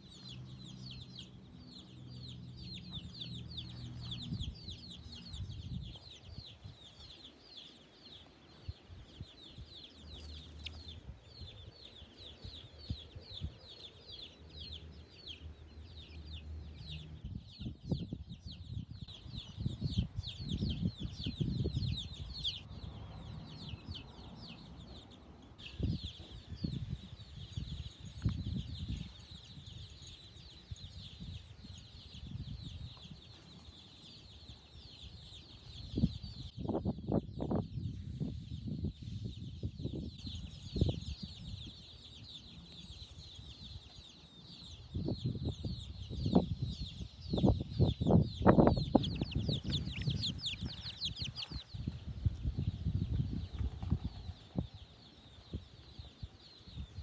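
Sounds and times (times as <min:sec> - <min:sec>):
chicks peeping: 0:00.1 - 0:57.0.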